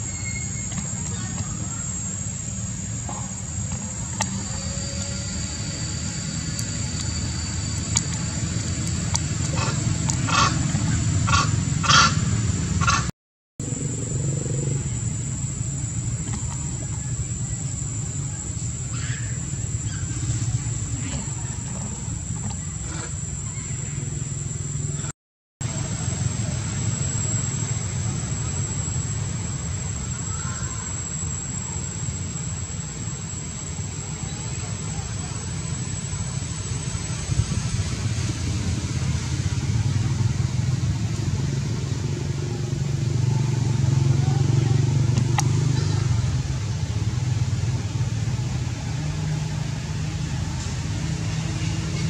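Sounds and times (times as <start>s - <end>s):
thin high whine: 0.0s - 12.9s
high-pitched whine: 0.0s - 52.0s
steady low rumble: 0.0s - 52.0s.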